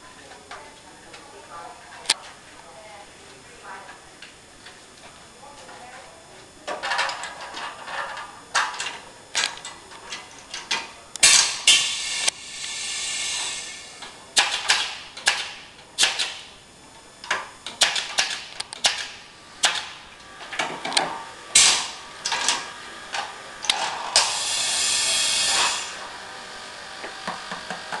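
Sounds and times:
machine hissing: 11.2s - 15.0s, 21.4s - 27.9s.

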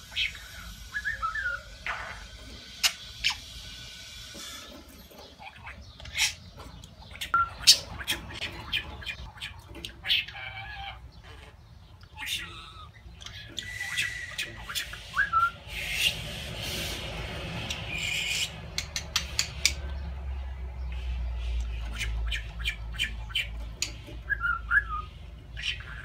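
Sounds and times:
budgerigar chattering: 5.3s - 19.9s, 20.9s - 26.0s
rising whistle: 13.6s - 14.5s.

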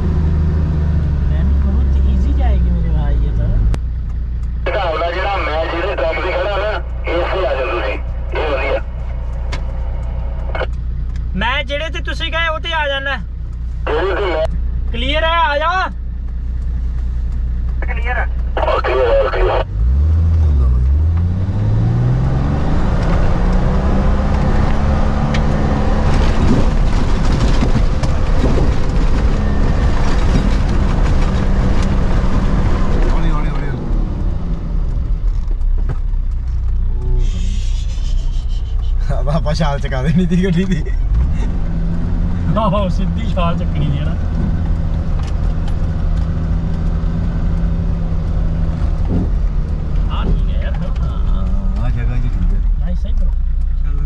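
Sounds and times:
car engine running: 0.0s - 54.0s.

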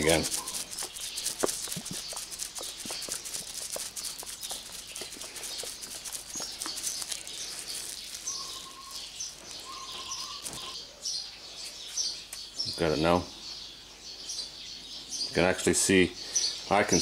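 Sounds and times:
cream sloshing in glass jar: 0.0s - 9.0s
high chirps: 0.0s - 10.8s.

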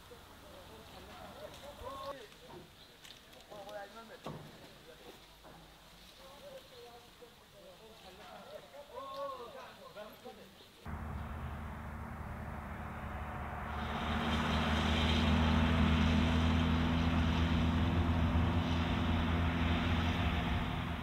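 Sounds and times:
van engine humming: 10.9s - 21.0s.

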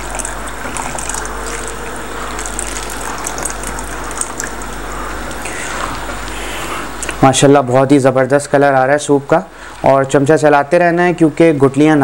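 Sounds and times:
liquid pouring into a pot: 0.0s - 7.2s.

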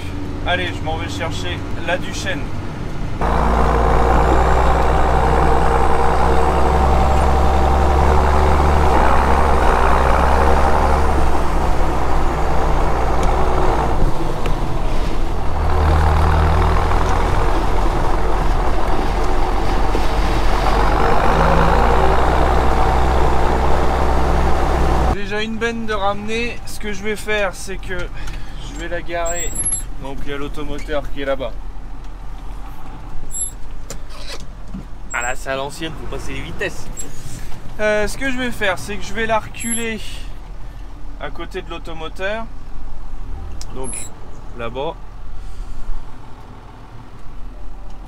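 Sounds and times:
tractor engine running: 0.0s - 25.2s.

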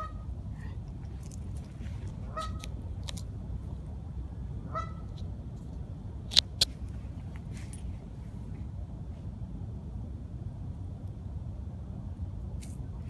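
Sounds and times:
low rumble: 0.0s - 13.0s
geese honking: 2.3s - 2.7s, 4.7s - 5.1s.

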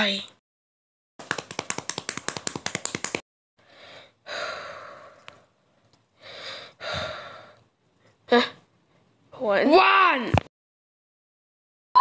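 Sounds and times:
rapid sharp clicks: 1.2s - 3.2s
person gasping: 6.2s - 7.6s.

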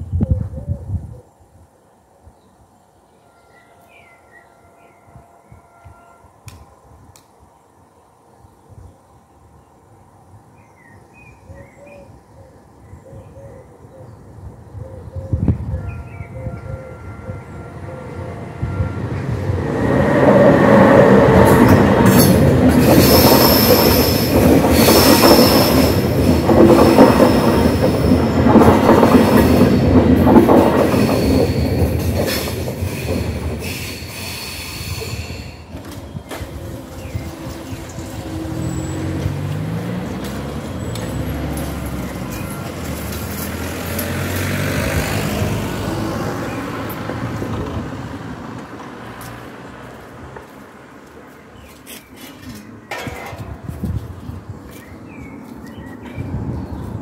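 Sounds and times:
train passing: 15.7s - 57.0s
high steady wheel squeal: 16.6s - 28.4s, 30.8s - 44.0s
wheels clattering over rails: 20.2s - 33.9s, 52.2s - 53.7s.

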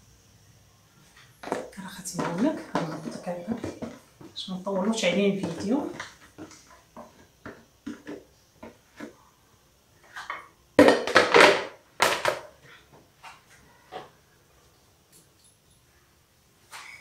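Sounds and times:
rustling and crinkling: 1.0s - 9.2s.

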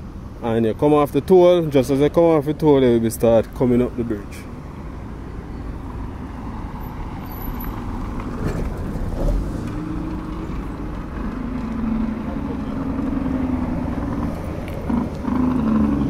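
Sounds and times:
steady engine hum: 0.0s - 16.0s
cars driving past on dirt road: 3.5s - 16.0s.

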